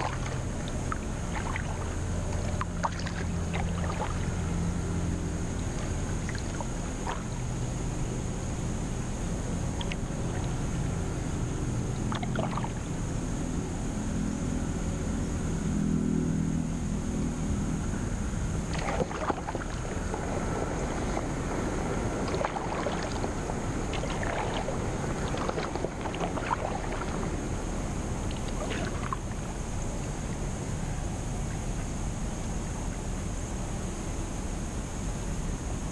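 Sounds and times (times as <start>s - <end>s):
paddle splashes and drips: 0.0s - 8.2s, 9.6s - 10.7s, 11.8s - 13.0s, 18.6s - 30.5s
steady water rush: 0.0s - 13.9s, 17.6s - 32.8s
low hum: 0.0s - 32.8s.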